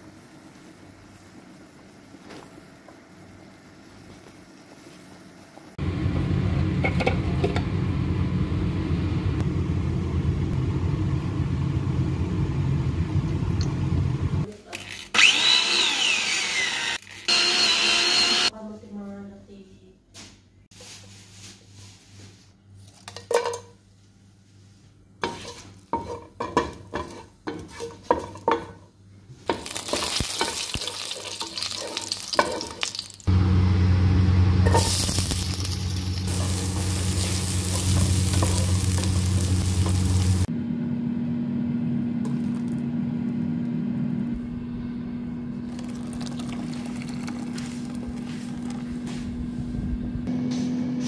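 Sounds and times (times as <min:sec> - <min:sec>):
wooden spatula stirring: 0:25.2 - 0:28.7
spices sizzling in butter: 0:29.4 - 0:40.5
steady low hum: 0:33.3 - 0:51.0.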